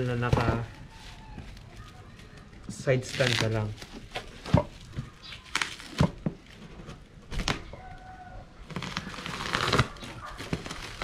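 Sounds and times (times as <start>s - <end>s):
plastic wrap crinkling: 0.0s - 11.0s
plastic wrap snapping: 3.0s - 6.5s, 7.3s - 7.8s, 8.6s - 11.0s.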